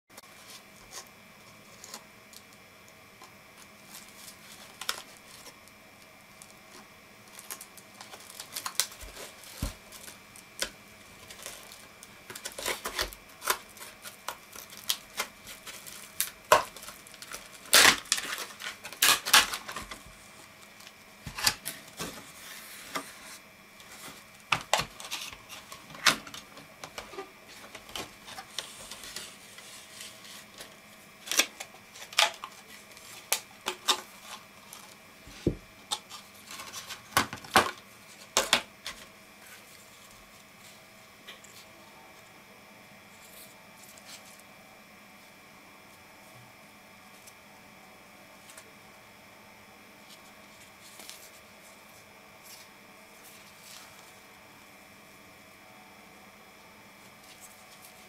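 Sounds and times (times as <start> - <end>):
plastic packaging snapping and crackling: 3.6 - 5.8, 6.4 - 22.2, 23.8 - 29.4, 30.1 - 39.1.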